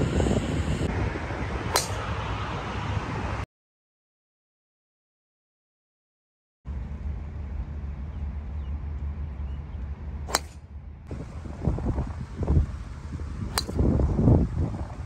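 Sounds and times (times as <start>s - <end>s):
wind on microphone: 0.0s - 3.4s, 11.1s - 15.0s
golf driver striking ball: 1.7s - 2.0s, 10.3s - 10.6s, 13.5s - 14.0s.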